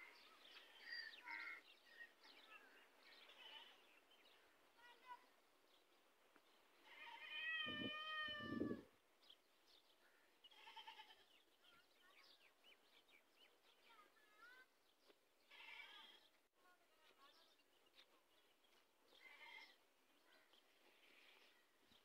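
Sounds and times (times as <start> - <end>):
young camel bleating: 3.2 - 3.9, 6.8 - 8.9, 10.5 - 11.3, 15.5 - 16.3, 19.2 - 19.8.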